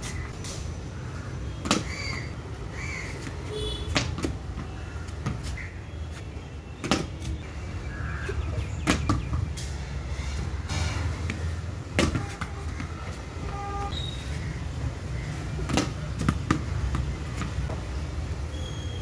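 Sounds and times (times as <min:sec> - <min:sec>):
ball rebounding off concrete: 0:01.5 - 0:02.3, 0:03.9 - 0:05.5, 0:06.8 - 0:07.2, 0:08.8 - 0:09.6, 0:11.2 - 0:13.2, 0:15.6 - 0:17.8.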